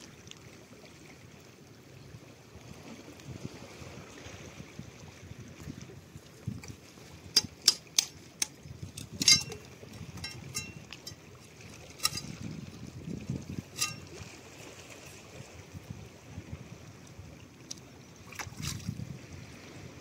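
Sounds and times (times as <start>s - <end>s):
blade striking oysters on rock: 7.4s - 9.6s
metallic ring: 9.1s - 11.3s, 11.9s - 12.4s, 13.7s - 14.1s.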